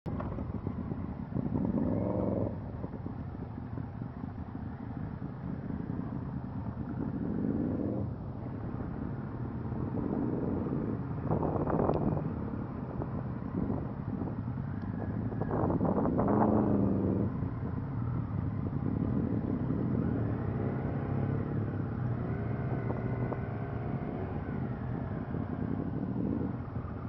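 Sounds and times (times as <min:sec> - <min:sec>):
motorcycle engines rumbling: 0:00.1 - 0:27.0.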